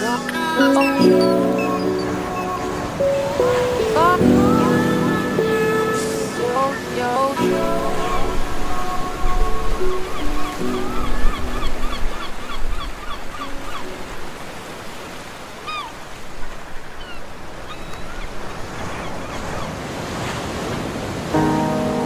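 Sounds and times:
background music: 0:00.0 - 0:12.3, 0:21.4 - 0:22.0
ocean surf washing on beach: 0:00.0 - 0:22.0.

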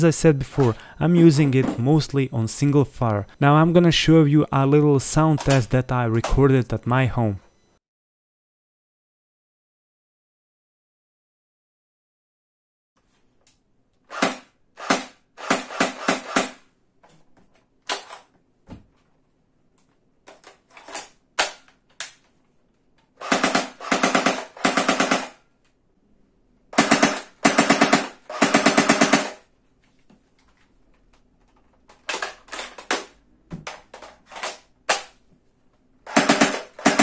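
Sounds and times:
airsoft gun firing: 0:14.1 - 0:16.6, 0:23.2 - 0:25.4, 0:26.8 - 0:29.4, 0:36.1 - 0:37.0.

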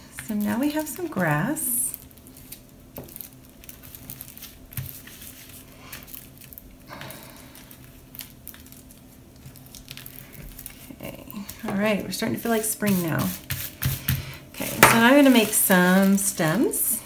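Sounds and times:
aluminium foil crinkling: 0:00.0 - 0:17.0
tissue paper crinkling: 0:00.3 - 0:11.5, 0:14.6 - 0:16.9.

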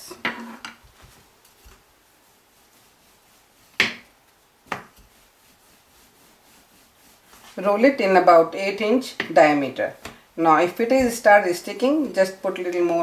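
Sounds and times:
hand patting dough: 0:00.8 - 0:11.5
rolling pin knocking on counter: 0:03.8 - 0:04.1, 0:04.7 - 0:05.0.

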